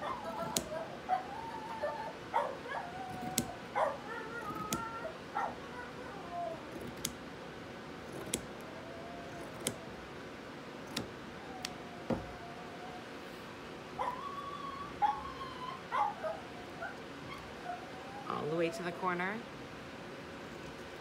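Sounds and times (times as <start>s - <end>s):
shears snipping fabric: 0.0s - 0.8s, 2.8s - 7.2s, 8.0s - 10.0s
dog yipping: 0.0s - 6.9s, 14.0s - 18.7s
dog whining: 0.0s - 7.2s, 8.0s - 10.3s, 10.9s - 19.2s.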